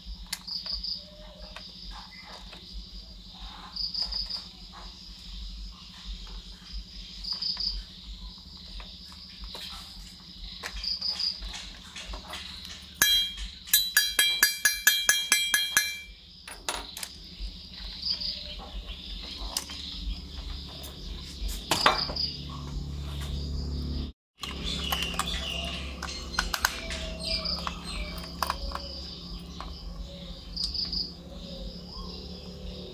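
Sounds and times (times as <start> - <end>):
crickets chirping: 0.0 - 32.9
metallic clinks of toy parts: 13.0 - 17.1.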